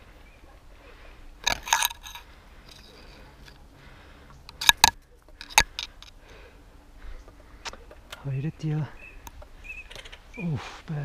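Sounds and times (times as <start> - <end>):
faint outdoor background: 0.0 - 11.0
sharp clicks: 9.2 - 10.2.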